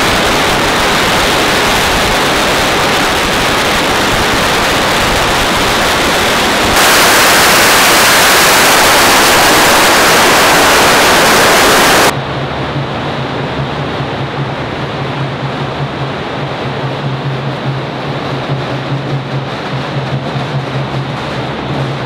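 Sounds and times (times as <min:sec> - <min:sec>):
firecracker barrage crackling: 0:00.0 - 0:12.1.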